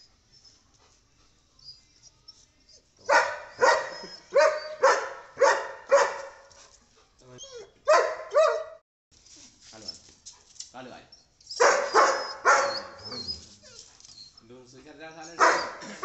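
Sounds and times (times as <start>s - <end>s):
dog barking: 3.0s - 6.5s, 7.8s - 8.8s, 11.6s - 13.2s, 15.3s - 16.0s.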